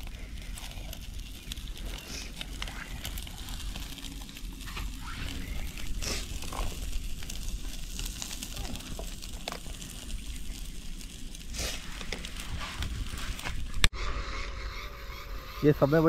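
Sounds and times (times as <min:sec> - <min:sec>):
charcoal crackling: 0:00.0 - 0:13.9
fish sizzling on a grill: 0:00.0 - 0:13.9.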